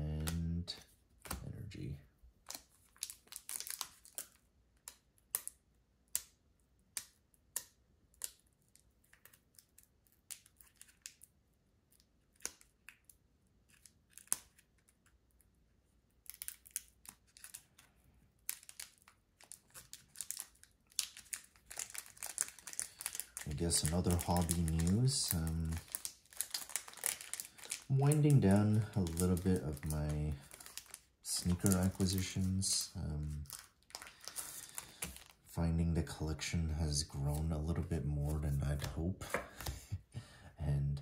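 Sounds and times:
cards clicking and snapping: 0.2 - 1.5, 2.4 - 11.3, 12.0 - 15.2, 16.2 - 35.4
foil wrapper crinkling and tearing: 2.4 - 5.5, 16.2 - 35.6.

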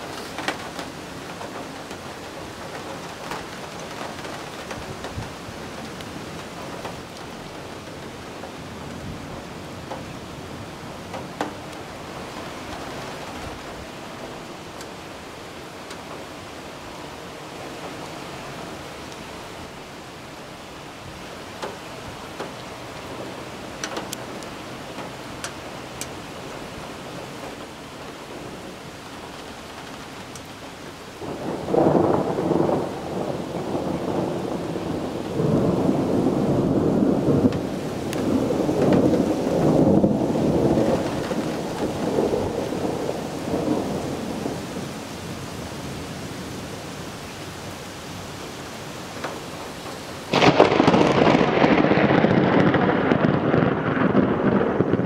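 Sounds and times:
steady rain: 0.0 - 55.0
rolling thunder rumble: 21.1 - 47.7, 49.1 - 55.0
loud thunder crack: 31.2 - 44.8, 50.3 - 55.0.

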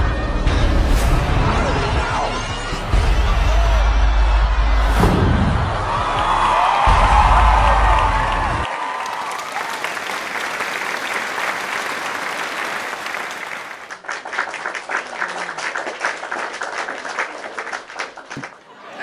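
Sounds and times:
audience applauding: 3.6 - 18.7.

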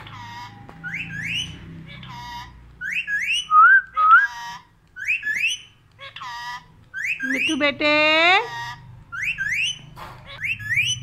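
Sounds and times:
harsh parakeet calls: 0.0 - 11.0
parakeet rising whistles: 0.8 - 1.6, 2.8 - 4.3.

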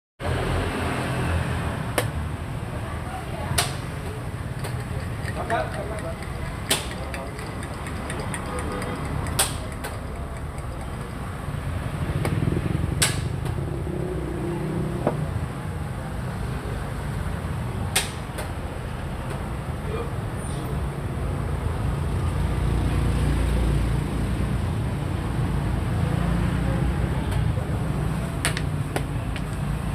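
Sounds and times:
game piece clacking on wooden board: 4.6 - 11.2.

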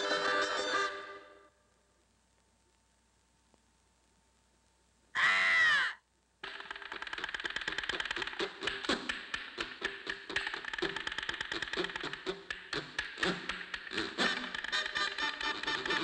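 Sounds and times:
rapid dry tapping and clicking: 6.4 - 16.0.

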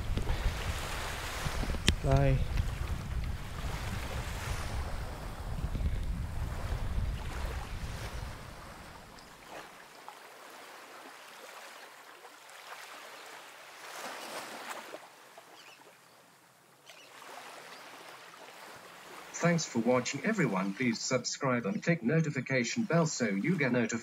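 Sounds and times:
wind rumbling on microphone: 0.0 - 9.3
small waves lapping: 0.0 - 24.0.

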